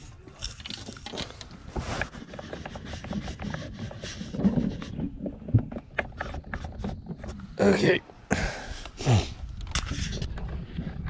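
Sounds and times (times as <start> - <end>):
camera handling rubbing: 0.4 - 5.1.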